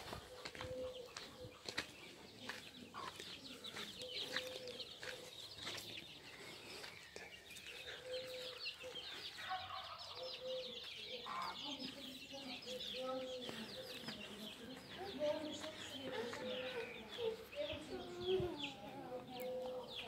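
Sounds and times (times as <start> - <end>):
chicks peeping: 0.0 - 20.0.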